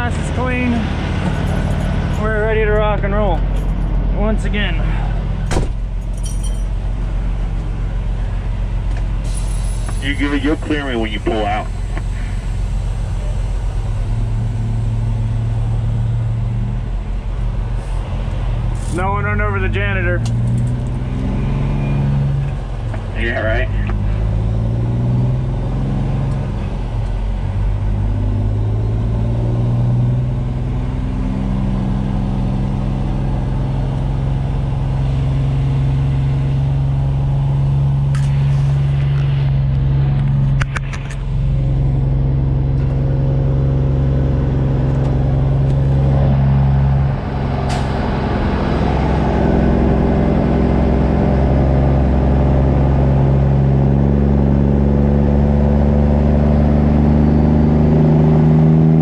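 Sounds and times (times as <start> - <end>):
truck diesel engine accelerating: 0.0 - 59.0.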